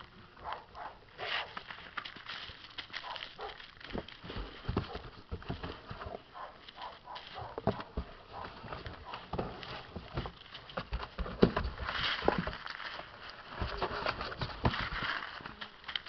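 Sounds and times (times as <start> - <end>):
puppies scrabbling in cardboard box: 1.2 - 16.0
cardboard box scuffing on concrete: 3.0 - 15.6.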